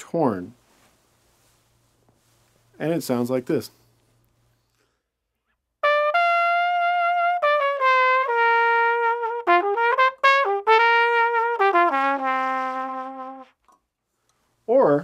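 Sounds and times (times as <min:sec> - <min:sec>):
flugelhorn melody: 0:05.8 - 0:13.6.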